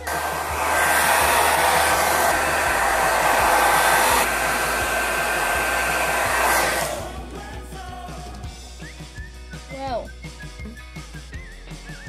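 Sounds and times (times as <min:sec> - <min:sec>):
hair dryer blowing with high whine: 0:00.0 - 0:08.4.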